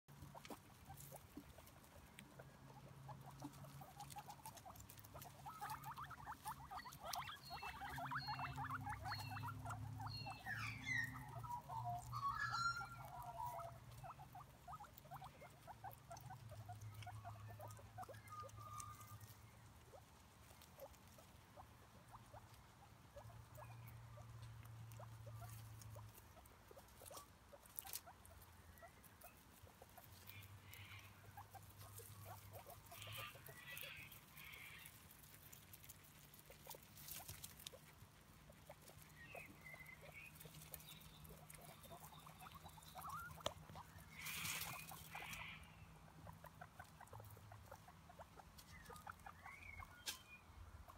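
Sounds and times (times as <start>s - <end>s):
guinea pig chirps: 0.1s - 50.9s
guinea pigs chewing grass: 0.1s - 50.9s
grass stems rustling: 31.6s - 39.2s, 43.3s - 45.4s.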